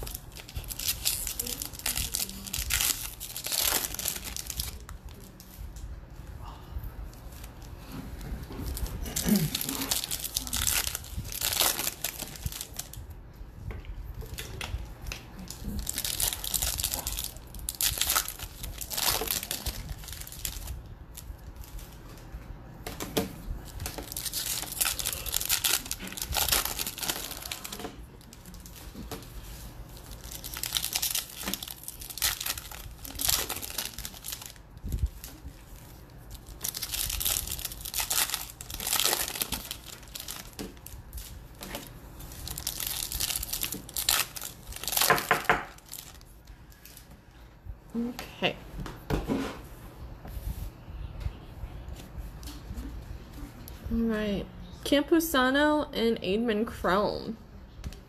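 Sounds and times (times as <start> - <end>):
wrappers tearing and crinkling: 0.0 - 5.6, 7.4 - 13.0, 14.2 - 22.0, 23.6 - 47.1.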